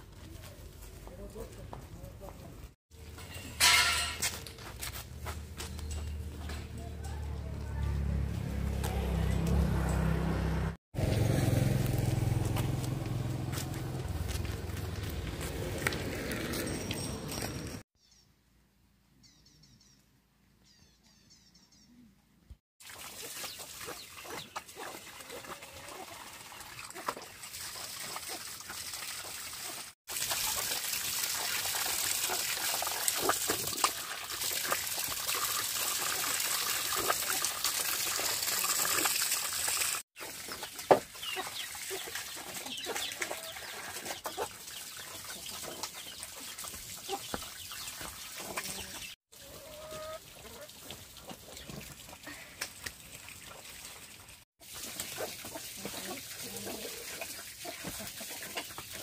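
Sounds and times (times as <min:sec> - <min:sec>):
running splashing water: 0:22.8 - 0:59.0
chickens clucking: 0:40.2 - 0:51.8.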